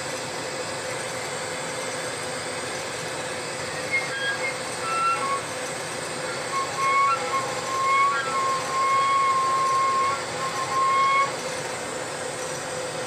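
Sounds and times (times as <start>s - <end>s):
high-pitched squeaks: 3.8s - 5.6s, 6.2s - 11.6s.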